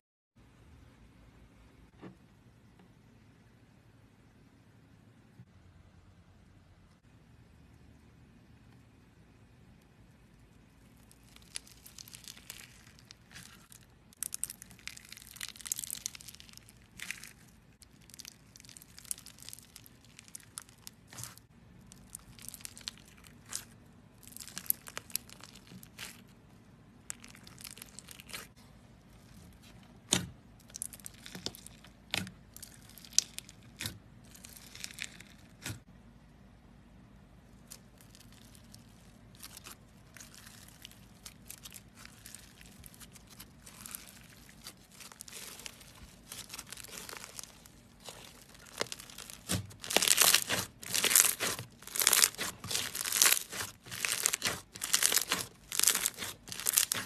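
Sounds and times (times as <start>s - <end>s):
slime with beads crunching: 10.9s - 35.9s, 37.5s - 57.0s.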